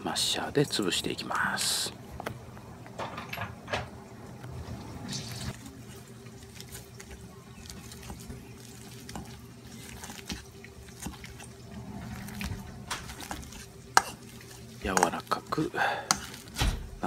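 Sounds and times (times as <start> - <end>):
wet squelches of mashing squash: 5.1 - 17.0.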